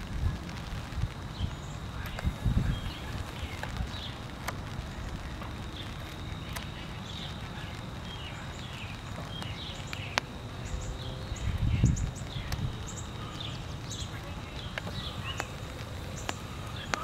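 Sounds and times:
light rain: 0:00.0 - 0:17.0
low rumble: 0:00.0 - 0:17.0
sharp ticks: 0:00.4 - 0:17.0
bird chirps: 0:04.9 - 0:17.0.

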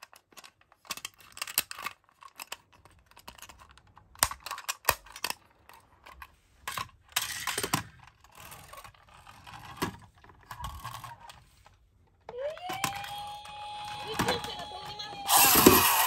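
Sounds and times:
toys clicking and knocking on floor: 0:00.0 - 0:16.0
toy scraping on wooden floor: 0:06.3 - 0:11.8, 0:13.7 - 0:16.0
electronic toy tone rising: 0:12.3 - 0:16.0.

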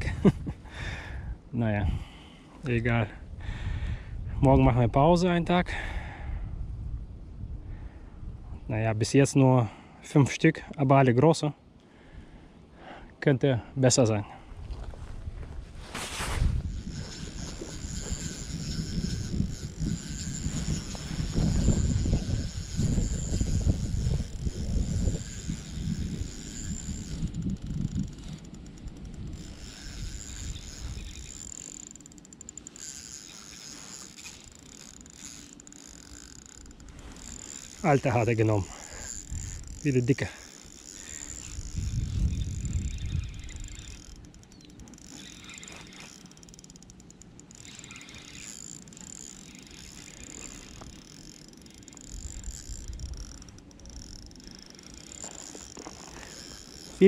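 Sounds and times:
wind rumble on microphone: 0:03.1 - 0:08.7, 0:14.5 - 0:31.4, 0:38.6 - 0:39.7, 0:41.4 - 0:44.2
spinning reel clicking whir: 0:16.0 - 0:57.0.

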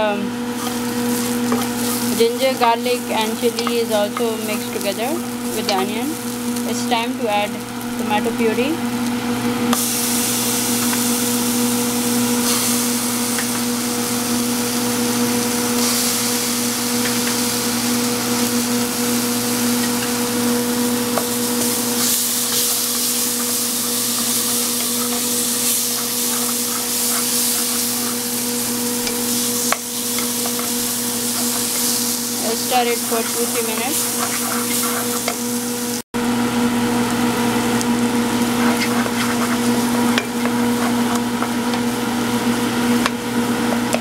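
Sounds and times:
food sizzling in a pan: 0:00.0 - 0:36.1, 0:36.7 - 0:44.0
steady low hum: 0:00.0 - 0:43.3
wooden spoon stirring: 0:00.6 - 0:05.9, 0:21.0 - 0:35.5, 0:38.5 - 0:41.8.

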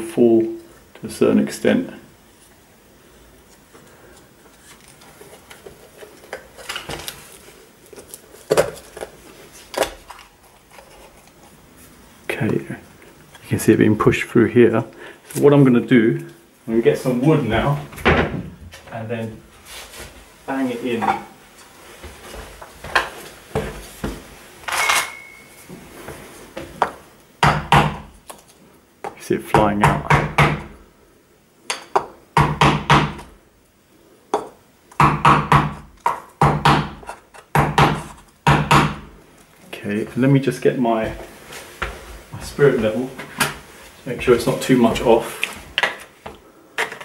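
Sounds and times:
hammer knocking on wood block: 0:27.4 - 0:28.0, 0:29.5 - 0:30.7, 0:34.4 - 0:39.0.

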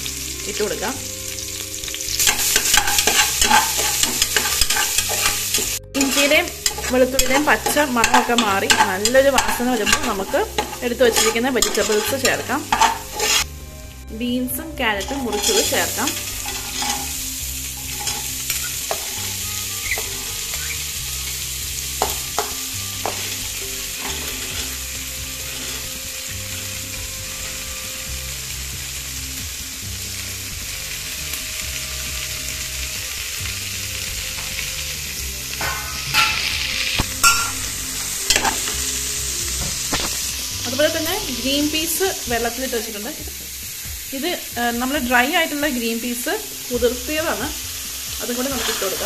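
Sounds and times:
vegetables sizzling in oil: 0:00.0 - 0:49.0
metal spoon clinking on pot: 0:02.2 - 0:13.4, 0:15.0 - 0:17.2, 0:35.6 - 0:36.5, 0:37.2 - 0:37.6.

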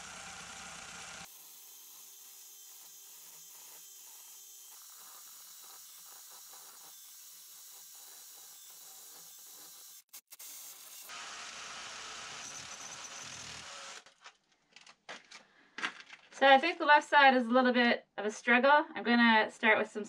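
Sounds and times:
hammer drill boring into stone: 0:00.0 - 0:14.1.

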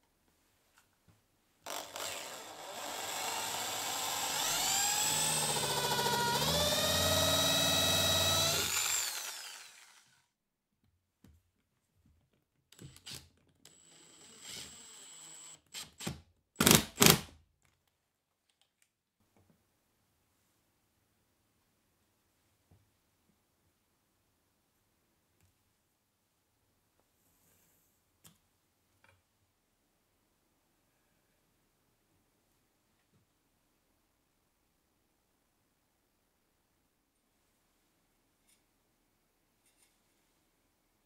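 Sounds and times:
power driver driving screw: 0:01.7 - 0:10.1, 0:12.8 - 0:17.3
power drill whining into wood: 0:01.7 - 0:10.2, 0:12.9 - 0:16.0.

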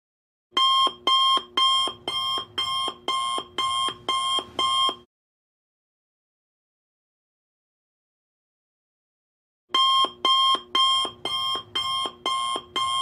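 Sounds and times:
alarm clock beeps: 0:00.6 - 0:05.0, 0:09.8 - 0:13.0.

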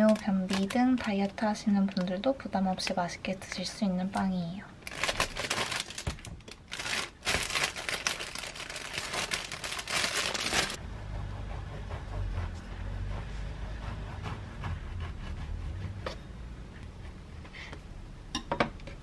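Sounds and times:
plastic bag crinkling: 0:00.0 - 0:02.0, 0:04.8 - 0:10.8.

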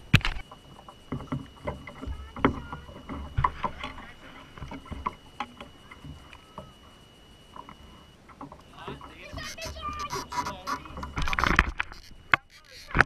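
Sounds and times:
faint steady high whine: 0:00.0 - 0:13.0
knocks and thuds on metal boat: 0:00.6 - 0:06.7.

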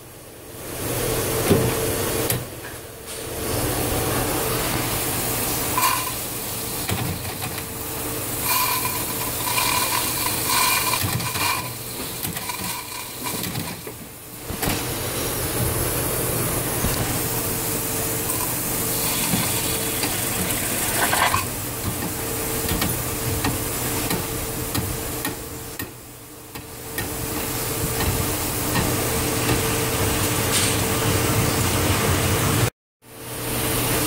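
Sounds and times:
steam sizzling and hissing: 0:04.5 - 0:14.3, 0:16.6 - 0:21.5.

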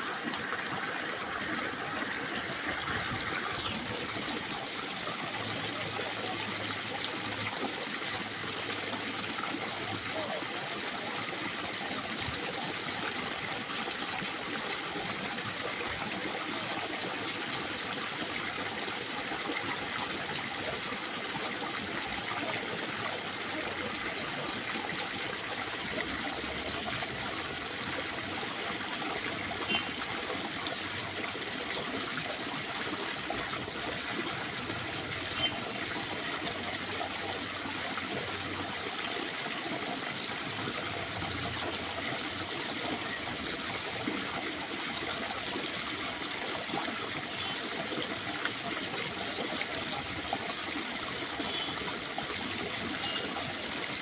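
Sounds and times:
flowing water rushing: 0:00.0 - 0:54.0.

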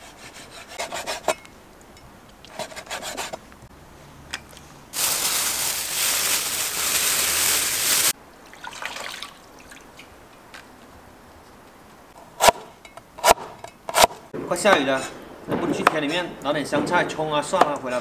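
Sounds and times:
loud steady hiss: 0:04.9 - 0:08.2.

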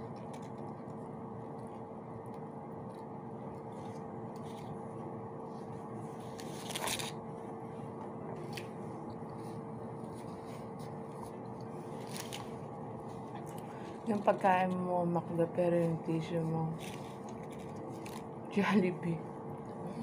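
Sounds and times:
steady background hum: 0:00.0 - 0:20.0
paper wrapper rustling: 0:06.2 - 0:07.2, 0:11.9 - 0:12.6.

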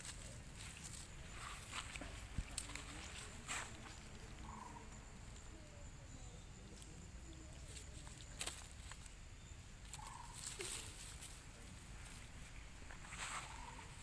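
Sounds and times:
grass stems snapping and rustling: 0:00.0 - 0:04.0, 0:07.7 - 0:09.2, 0:09.8 - 0:11.4
faint animal call: 0:04.3 - 0:06.3, 0:13.1 - 0:14.0.

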